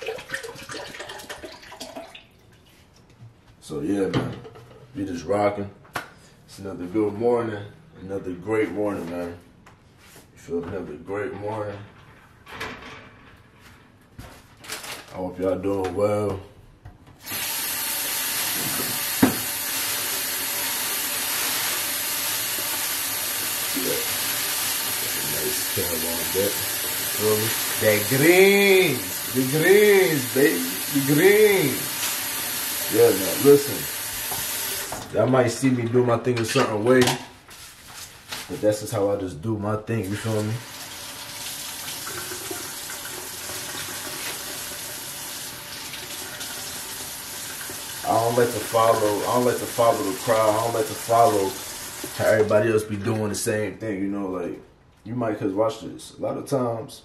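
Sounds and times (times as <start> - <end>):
water running from tap: 0.0 - 2.7, 17.2 - 35.1, 40.2 - 52.6
plastic bag crinkling: 14.6 - 15.2.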